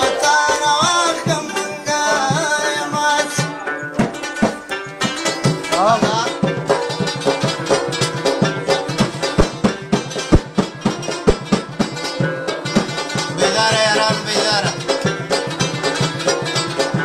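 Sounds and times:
man singing: 0.0s - 3.8s, 13.3s - 15.0s
plucked string instrument: 0.0s - 17.0s
drum strikes: 4.0s - 17.0s.

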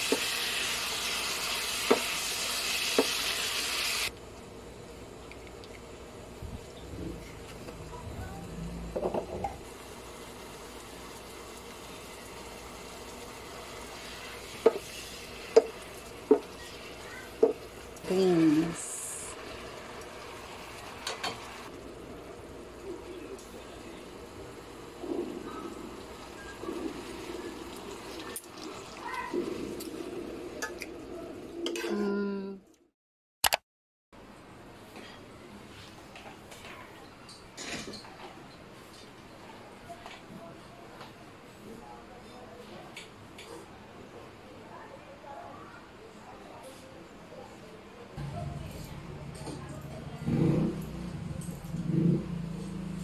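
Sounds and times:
meat and beans sizzling in pan: 0.0s - 4.1s, 9.7s - 21.8s.

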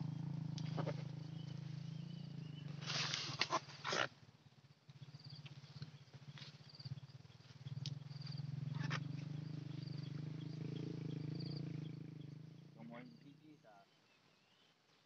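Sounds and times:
low pulsing hum: 0.0s - 12.0s.

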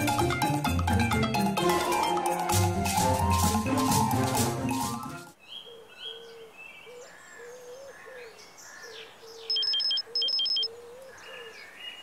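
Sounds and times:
birds chirping: 5.4s - 12.0s
low cooing call: 5.7s - 11.7s
phone ringing with electronic beeps: 9.5s - 10.7s.

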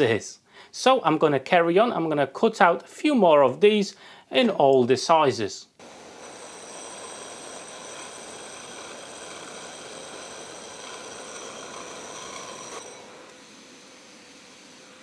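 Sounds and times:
drill motor whine: 5.8s - 15.0s
hole saw cutting wood: 5.8s - 15.0s.

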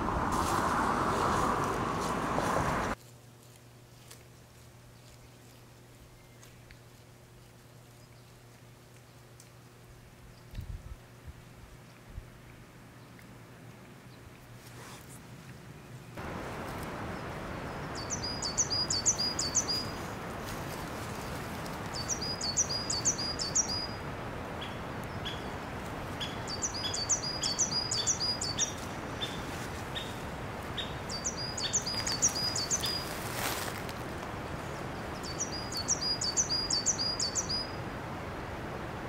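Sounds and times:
outdoor background hiss: 0.0s - 39.0s
rustle: 0.0s - 39.0s
bird singing fast high phrases: 17.7s - 20.0s, 22.0s - 24.0s, 31.1s - 33.1s.

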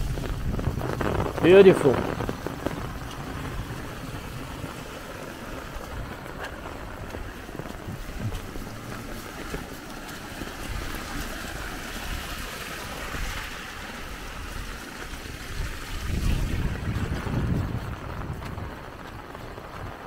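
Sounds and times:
water rushing over weir: 0.0s - 20.0s
wind noise on microphone: 0.0s - 20.0s.

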